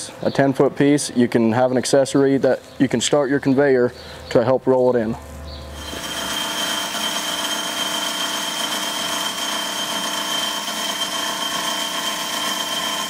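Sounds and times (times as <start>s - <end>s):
band saw cutting steel: 5.8s - 13.0s.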